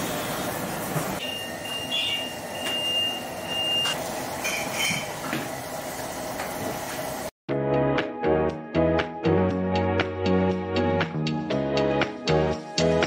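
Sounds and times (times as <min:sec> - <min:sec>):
high whistling tone: 0:01.2 - 0:04.9
crockery clinking: 0:04.4 - 0:05.2.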